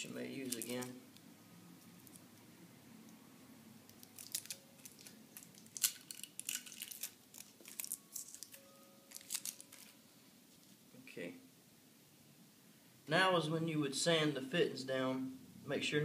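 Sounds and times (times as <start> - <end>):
adhesive tape peeling crackles: 0.4 - 1.0, 1.9 - 2.3, 3.9 - 10.0.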